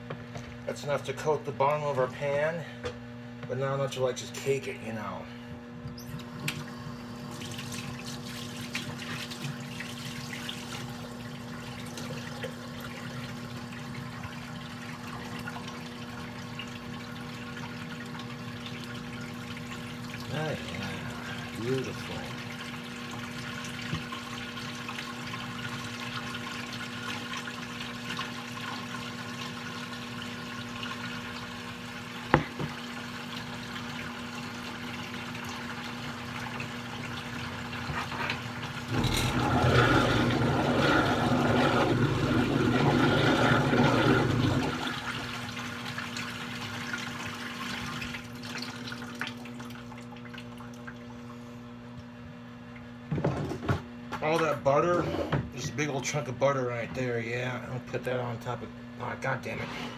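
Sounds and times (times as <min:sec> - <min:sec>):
water running hard: 0:06.2 - 0:51.0.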